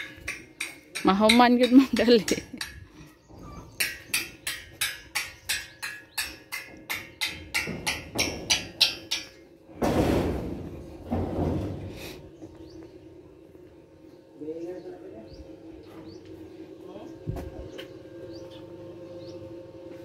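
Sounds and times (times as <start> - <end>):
rapid ringing hammering: 0.0 - 2.9, 3.7 - 9.5.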